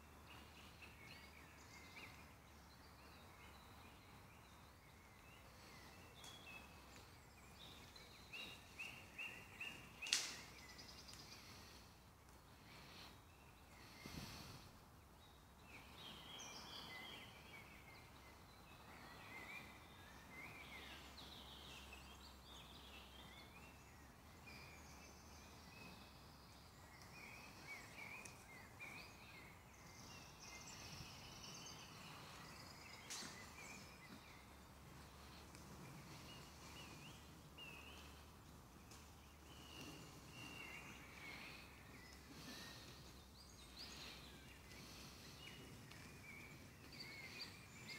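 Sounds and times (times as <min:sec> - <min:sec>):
birds chirping and trilling: 0:00.0 - 0:47.9.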